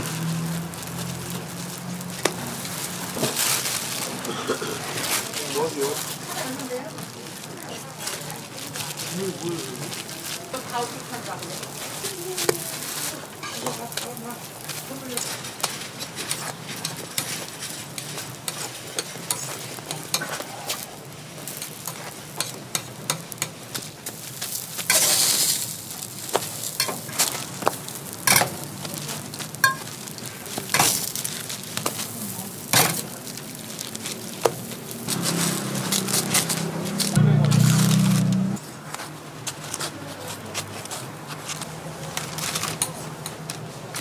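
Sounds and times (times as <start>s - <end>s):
pancakes sizzling on a griddle: 0.0s - 44.0s
metal tongs scraping a griddle: 10.6s - 38.4s, 39.0s - 44.0s.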